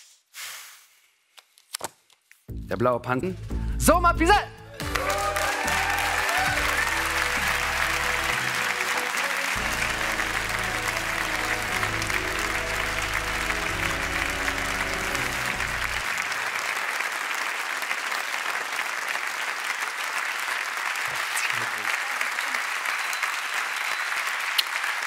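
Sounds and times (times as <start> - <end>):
music playing: 2.5 - 16.4
audience applauding: 4.8 - 25.0.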